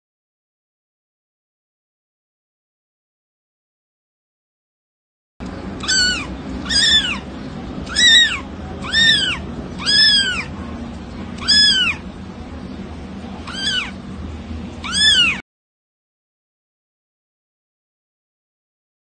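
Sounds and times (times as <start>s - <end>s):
cat meowing: 5.8s - 10.6s, 11.4s - 12.0s, 13.4s - 14.0s, 14.8s - 15.4s.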